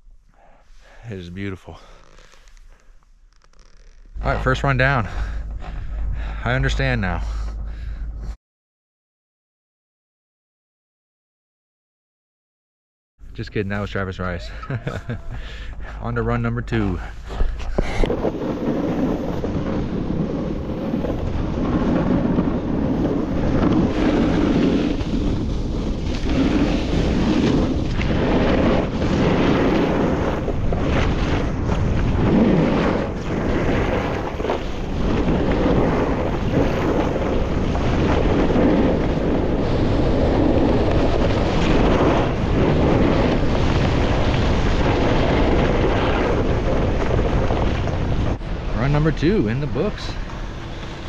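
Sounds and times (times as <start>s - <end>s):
wind buffeting microphone: 4.2s - 8.4s, 14.4s - 51.0s
snowboard scraping on snow: 16.7s - 48.4s.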